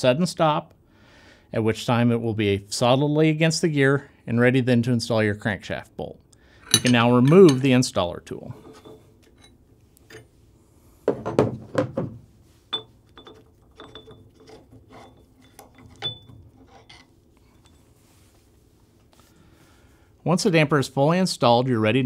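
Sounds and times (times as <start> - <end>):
metal wrench clinks and clanks: 6.6 - 7.7, 12.7 - 17.8
loud knocks: 11.1 - 12.2.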